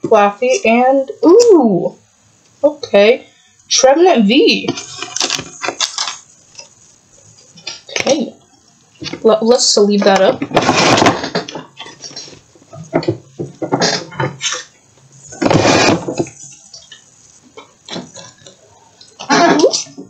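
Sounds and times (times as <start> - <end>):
foil pack crinkling: 4.8 - 8.1.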